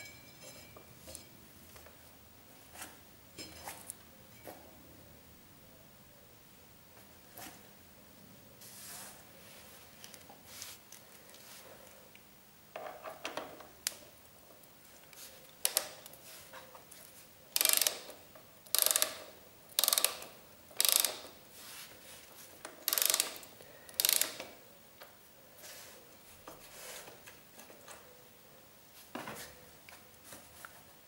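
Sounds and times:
ratchet wrench ratcheting: 17.6s - 21.3s, 22.8s - 24.5s.

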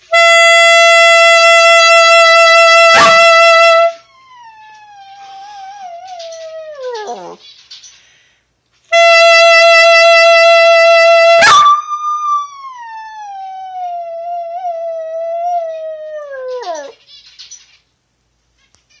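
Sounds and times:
small dog howling: 3.9s - 7.4s, 11.4s - 17.0s
saxophone note: 8.9s - 11.5s.

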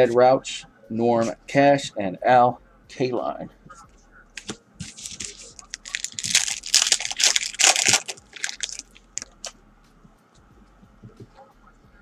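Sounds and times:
wrapper tearing and crinkling: 4.4s - 9.5s.

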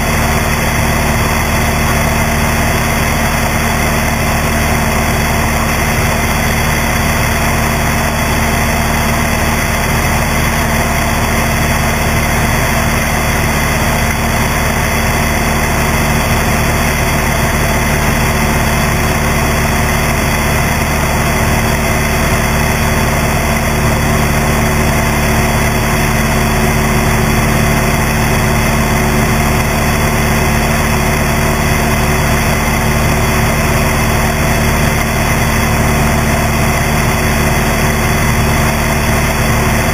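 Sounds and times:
propeller plane engine running: 0.0s - 39.9s.

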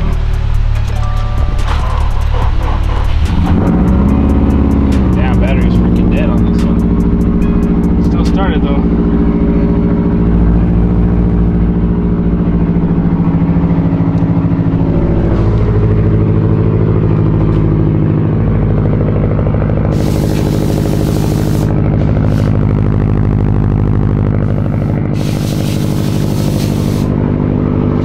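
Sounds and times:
car engine idling: 0.0s - 28.0s
hiss: 19.9s - 22.6s, 25.1s - 27.2s.

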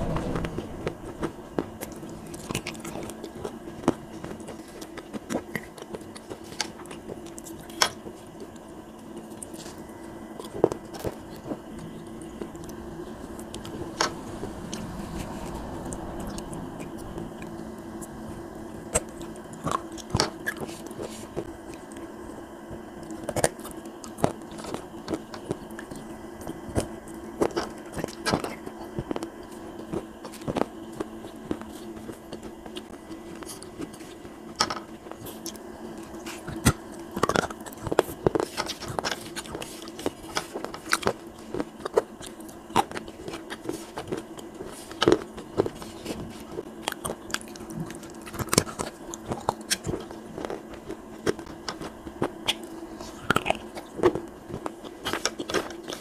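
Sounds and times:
low hum: 0.0s - 3.3s, 9.8s - 20.0s
chewing wet clay: 2.3s - 16.5s, 23.0s - 56.0s.

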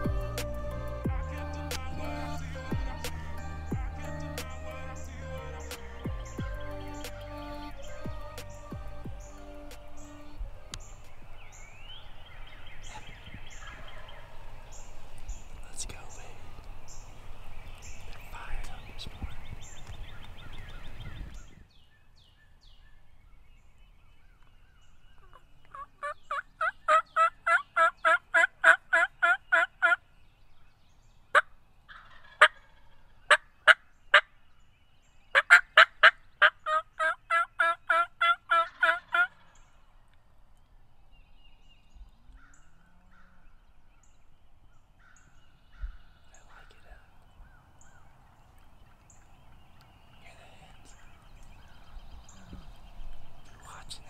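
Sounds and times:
turkey clucks: 25.2s - 30.0s, 31.3s - 34.2s, 35.4s - 39.6s
turkey yelps: 25.2s - 30.0s, 31.4s - 34.2s, 35.4s - 39.5s.

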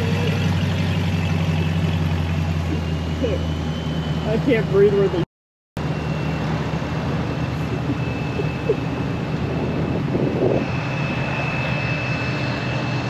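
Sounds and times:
trucks rolling slowly past: 0.0s - 5.2s, 5.8s - 10.1s.

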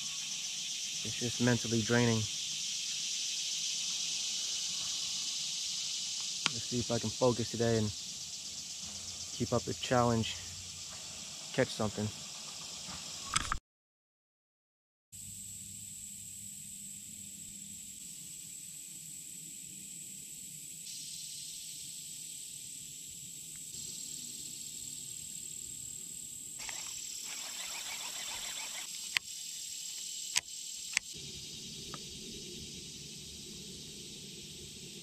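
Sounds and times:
rustle: 0.0s - 13.3s, 15.2s - 35.0s
high-pitched insect chorus: 0.0s - 13.5s, 15.2s - 35.0s
sharp clicks: 26.6s - 29.3s, 30.3s - 31.1s.

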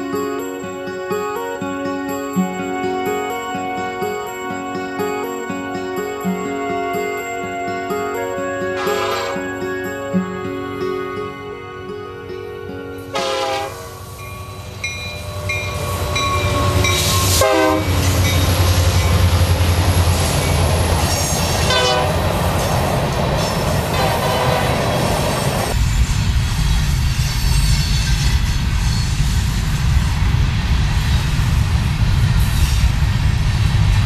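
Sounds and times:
diesel locomotive engines rumbling: 0.0s - 34.0s
train horn: 2.4s - 20.2s, 20.8s - 22.5s, 23.9s - 25.2s
freight cars rumbling on rails: 13.6s - 34.0s.

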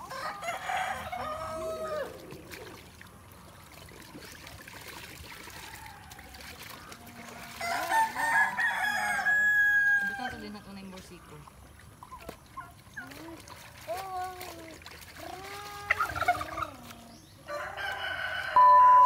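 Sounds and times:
rooster crowing: 0.0s - 2.3s, 7.6s - 10.4s, 17.5s - 19.0s.

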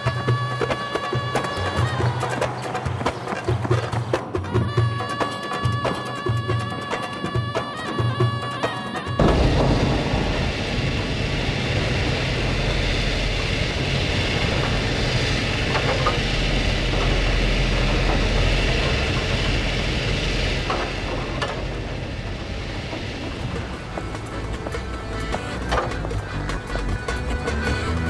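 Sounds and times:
diesel engine rumble: 9.2s - 28.0s.

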